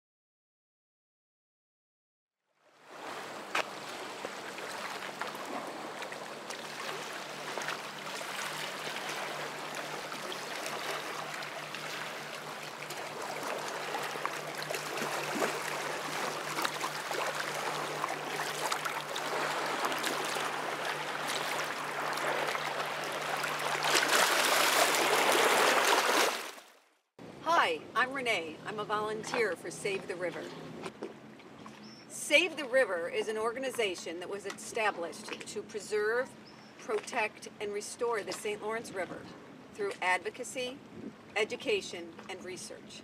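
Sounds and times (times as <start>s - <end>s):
river water lapping over rocks: 2.6s - 27.0s.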